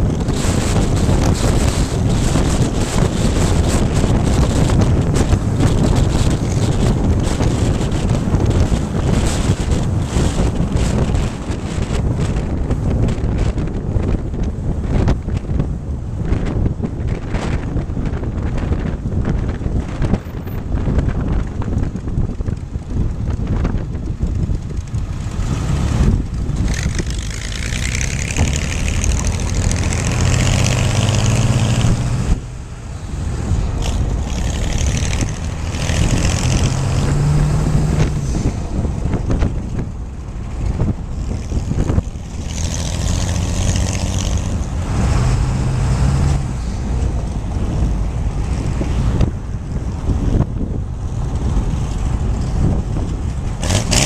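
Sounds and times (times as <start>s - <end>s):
road rumble: 0.0s - 54.0s
wind buffeting microphone: 0.0s - 54.0s
engine accelerating: 23.3s - 54.0s.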